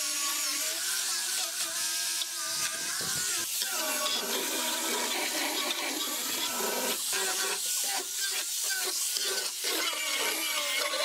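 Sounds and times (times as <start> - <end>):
grinder motor whine: 0.0 - 7.0
sanding disc hissing on wood: 0.0 - 11.0.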